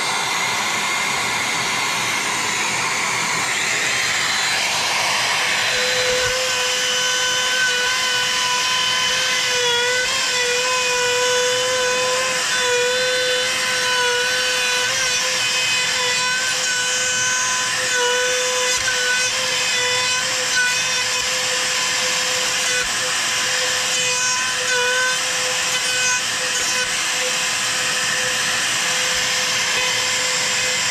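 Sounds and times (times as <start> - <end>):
trim router whining: 0.0 - 30.9.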